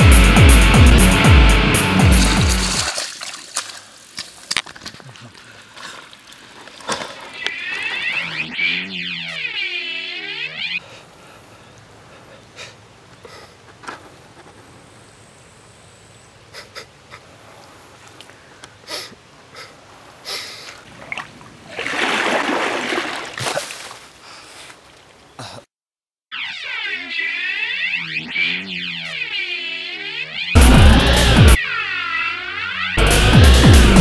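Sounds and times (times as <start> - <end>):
soil patters and impacts: 2.1 - 8.5
earth pouring: 2.2 - 7.2.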